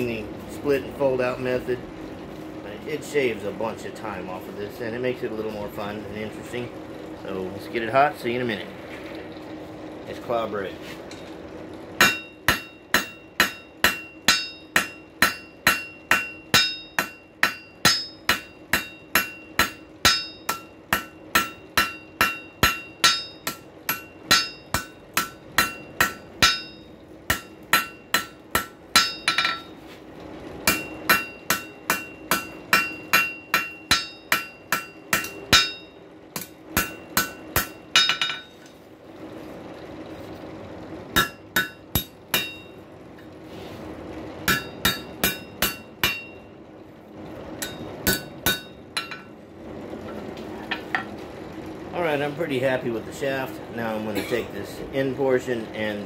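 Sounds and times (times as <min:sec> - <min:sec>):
hammer striking metal on anvil: 0:12.0 - 0:29.8, 0:30.6 - 0:38.7, 0:41.2 - 0:42.8, 0:44.4 - 0:46.4, 0:47.6 - 0:49.3.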